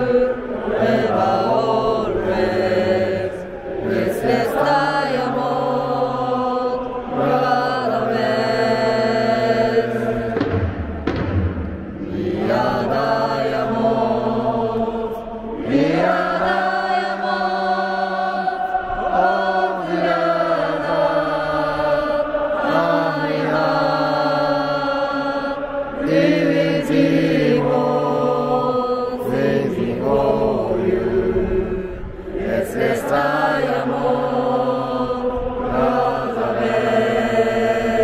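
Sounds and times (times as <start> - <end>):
football crowd singing in unison: 0.0 - 38.0.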